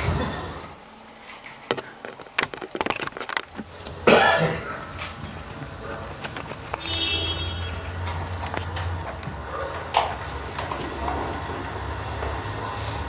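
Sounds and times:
person coughing: 4.0 - 4.8.

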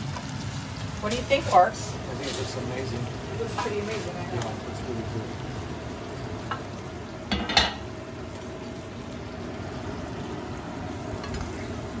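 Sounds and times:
sauce bubbling and sizzling in skillet: 0.0 - 12.0
plate clattering on stovetop: 7.3 - 7.9.

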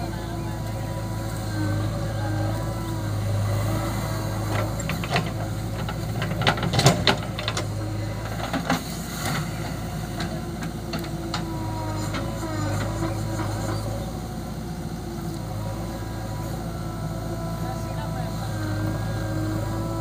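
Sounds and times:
diesel engine running: 0.0 - 20.0
scattered clunks: 3.4 - 14.1.

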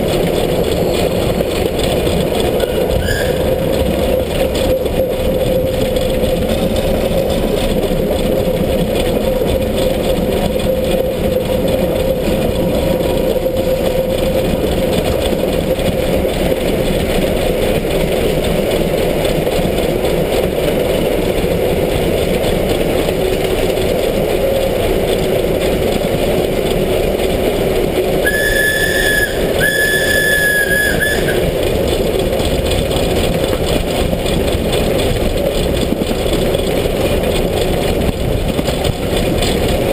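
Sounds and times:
steam locomotive running on rails: 0.0 - 39.9
steam whistle blasts: 2.6 - 3.8, 28.2 - 31.7.

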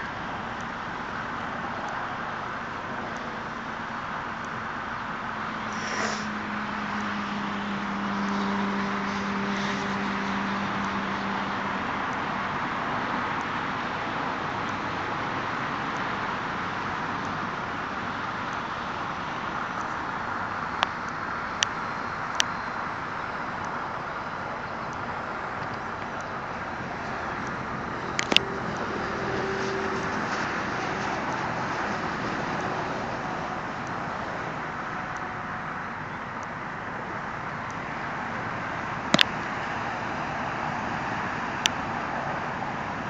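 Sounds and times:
outdoor background rushing: 0.0 - 43.0
sharp clicks: 19.5 - 30.5.

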